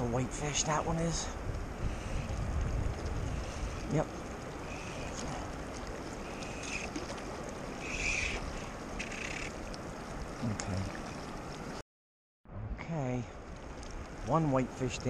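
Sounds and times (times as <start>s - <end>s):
wind on microphone: 1.1s - 9.1s
fast river rushing: 2.1s - 11.4s.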